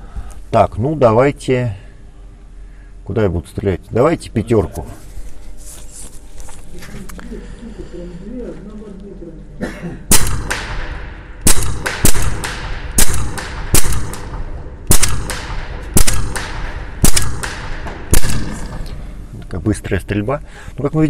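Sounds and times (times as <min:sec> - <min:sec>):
air rifle shots with echo: 0:10.1 - 0:19.0.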